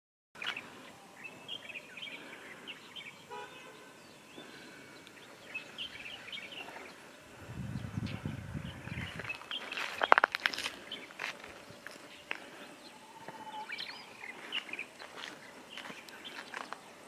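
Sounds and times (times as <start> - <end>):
footsteps on gravel road: 0.4 - 0.7, 8.9 - 16.9
birds chirping: 0.4 - 17.0
vehicle horn toot: 3.3 - 4.0.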